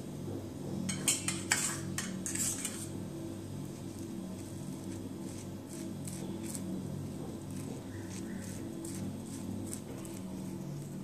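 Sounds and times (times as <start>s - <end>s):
knife scraping steel bowl: 0.9s - 3.0s, 3.9s - 11.0s
knife spreading butter on bread: 2.2s - 3.0s, 3.7s - 11.0s.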